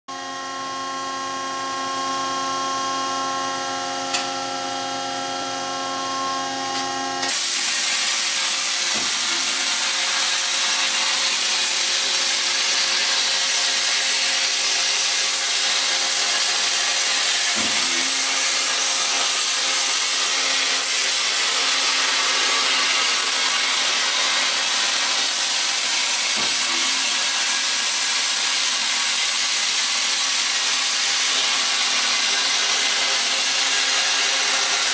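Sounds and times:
machine whine: 0.1 - 34.9
water jet high-pitched hiss: 7.3 - 34.9.

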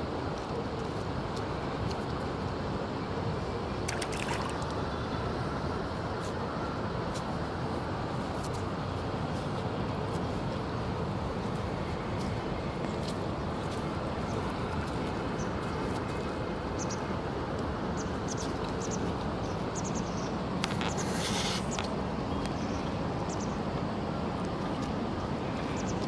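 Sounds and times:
outdoor background noise: 0.0 - 26.0
brief hiss: 20.8 - 21.8.

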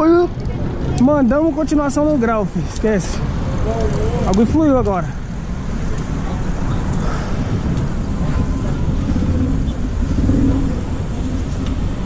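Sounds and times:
nearby cars driving: 0.0 - 12.0
wind on microphone: 3.2 - 12.0.

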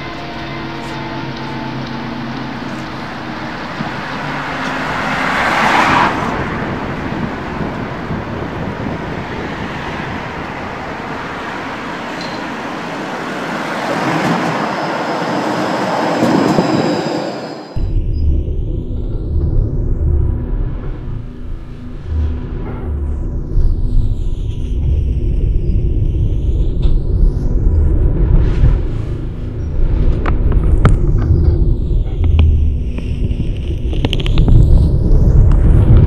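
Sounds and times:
train rushing past: 0.0 - 33.9.

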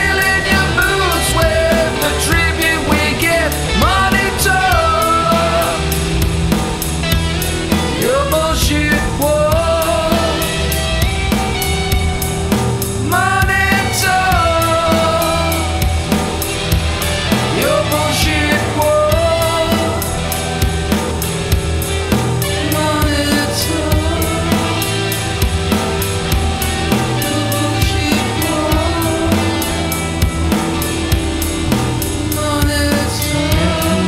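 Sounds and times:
bending lead melody: 0.0 - 34.0
drum kit beat: 0.0 - 34.0
rock band music: 0.0 - 34.0.

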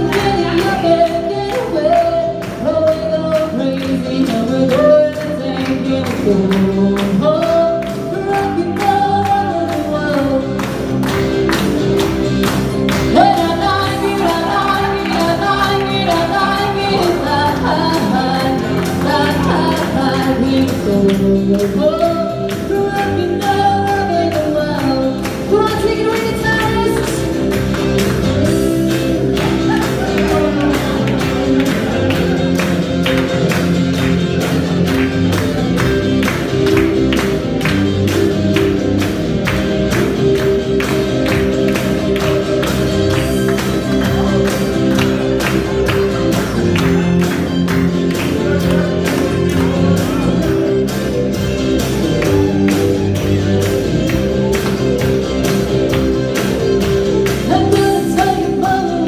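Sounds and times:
woman singing into a microphone: 0.0 - 10.9, 13.0 - 27.4, 57.4 - 59.0
amplified backing music: 0.0 - 59.0.

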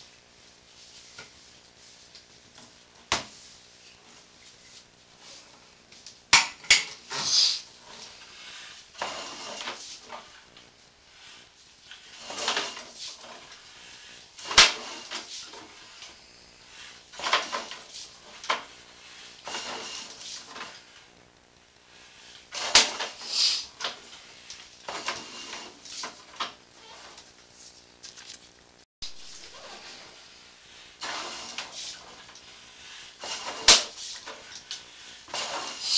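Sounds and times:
cable scraping in drain pipe: 7.0 - 21.0, 22.3 - 27.4, 31.0 - 35.9.

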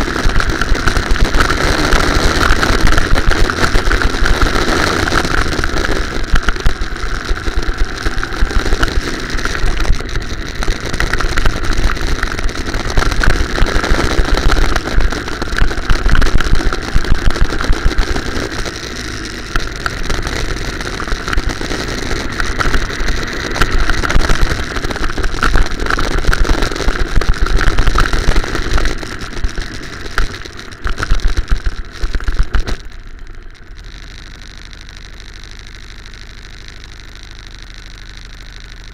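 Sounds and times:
go-kart engine running hard: 0.0 - 30.2.

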